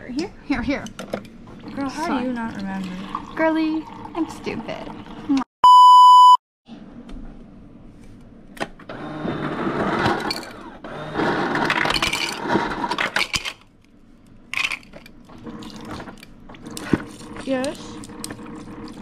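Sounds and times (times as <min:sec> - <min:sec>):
ice cubes clattering into cup: 0:11.7 - 0:12.4, 0:14.6 - 0:15.9.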